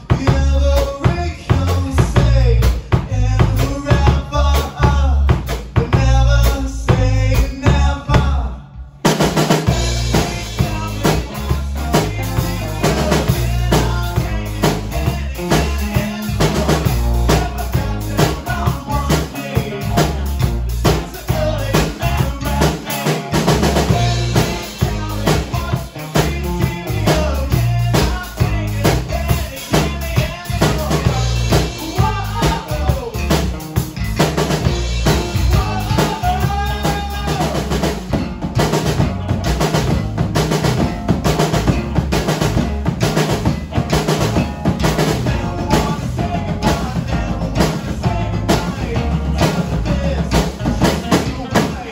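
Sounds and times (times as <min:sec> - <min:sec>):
live rock band: 0:00.0 - 0:51.9
kick and snare drumming: 0:09.1 - 0:51.9.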